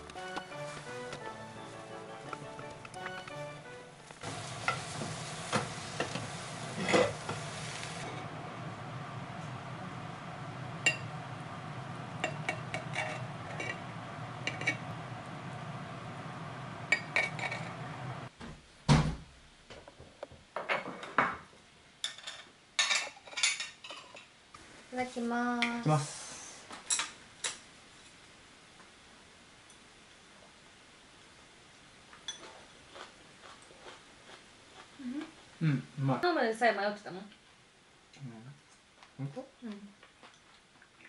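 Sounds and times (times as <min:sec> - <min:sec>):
egg sizzling in a pan: 0:04.1 - 0:18.3
knife and dishes clinking: 0:14.5 - 0:14.9.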